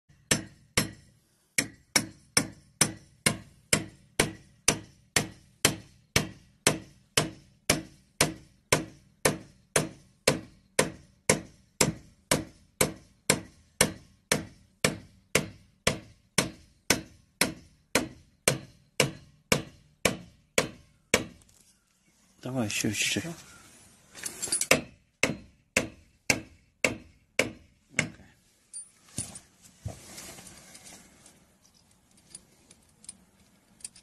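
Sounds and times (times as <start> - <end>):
hammer striking metal anchor: 0.1 - 21.4, 24.3 - 29.4.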